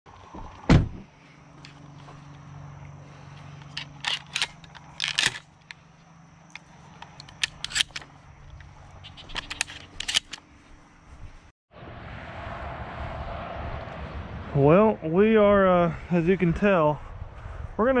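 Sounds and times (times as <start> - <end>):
shotgun shells clicking into magazine: 3.6 - 5.5, 6.5 - 8.1, 9.1 - 10.4.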